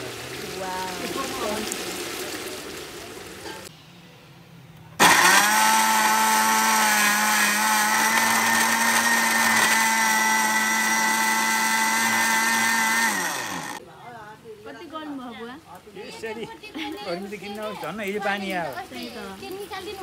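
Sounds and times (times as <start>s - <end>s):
mixer grinder motor whine: 5.0s - 13.8s.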